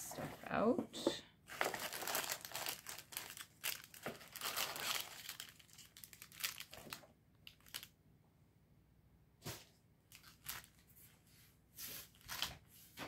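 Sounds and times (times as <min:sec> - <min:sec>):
paper and cellophane crinkling: 0:01.5 - 0:07.9, 0:10.1 - 0:11.0, 0:11.9 - 0:12.7.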